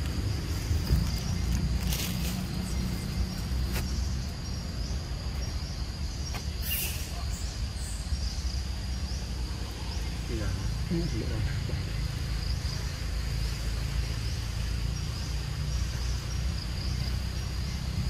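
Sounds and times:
steady low rumble: 0.0 - 6.3
high insect drone: 0.0 - 18.0.

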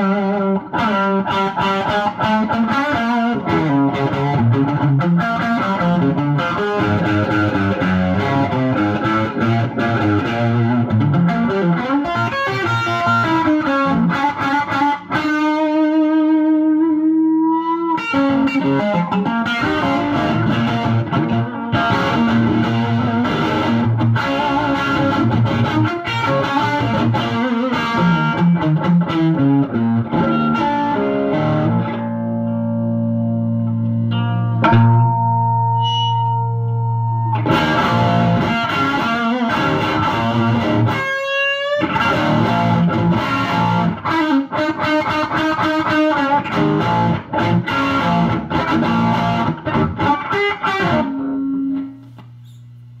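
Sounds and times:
electric guitar chord ringing: 0.0 - 53.0
electric guitar single notes: 0.0 - 53.0
amplifier hum: 30.3 - 38.9, 51.1 - 53.0.

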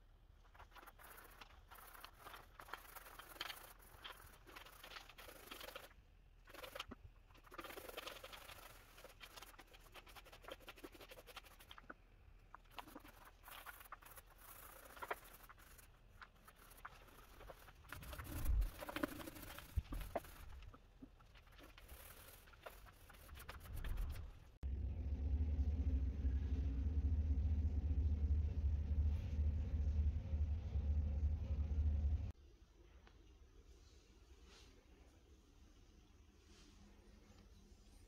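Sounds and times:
paint roller rolling on wood: 0.5 - 24.7.

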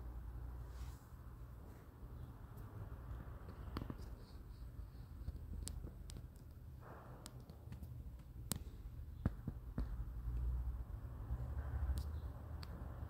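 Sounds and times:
pen clicks and taps on paper: 3.4 - 10.5.

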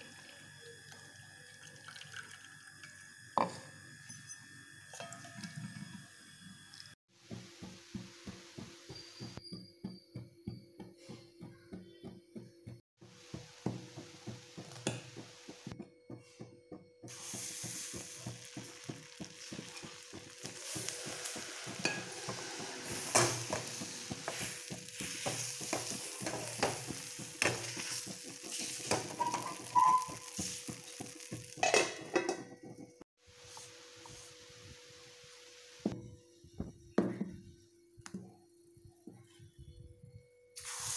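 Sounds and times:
batter sizzling in a pan: 13.0 - 15.8, 17.1 - 32.3, 40.6 - 40.9.

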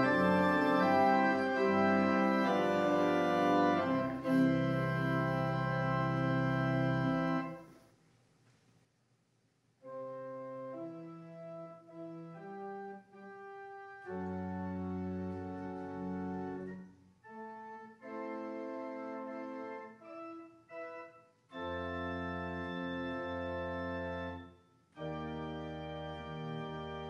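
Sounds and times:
church organ chords: 0.0 - 7.6, 9.9 - 27.0
deep organ pedal bass: 0.0 - 7.6, 14.0 - 16.8, 21.6 - 24.4, 25.0 - 27.0.

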